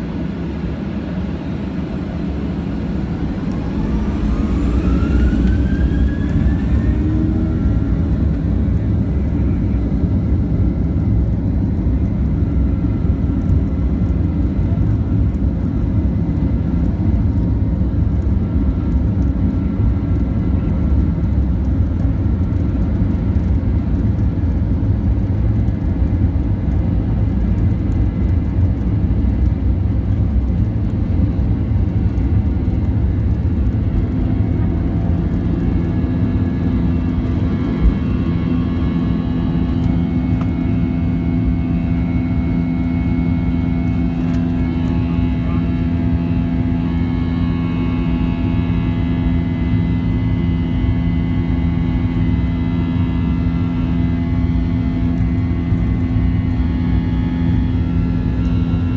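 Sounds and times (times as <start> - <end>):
jet engines spooling up: 0.2 - 8.9.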